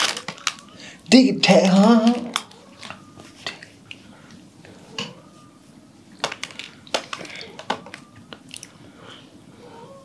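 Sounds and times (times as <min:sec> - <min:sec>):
chewing crunchy snack: 0:08.3 - 0:08.8.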